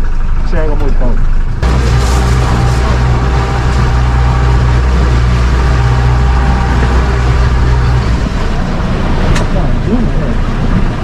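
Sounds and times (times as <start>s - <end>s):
boat engine droning: 0.0s - 11.0s
water rushing: 1.6s - 11.0s.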